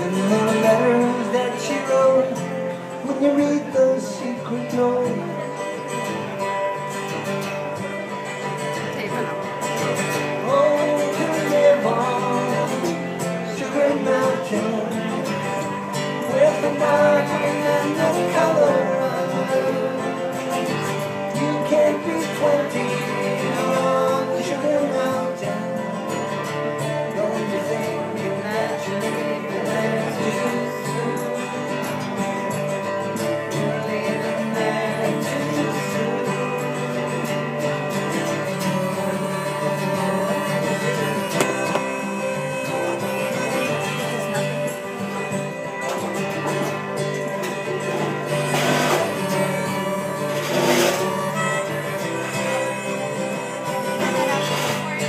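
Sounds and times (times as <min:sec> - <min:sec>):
acoustic guitar strumming: 0:00.0 - 0:55.0
harmonica playing: 0:37.7 - 0:55.0.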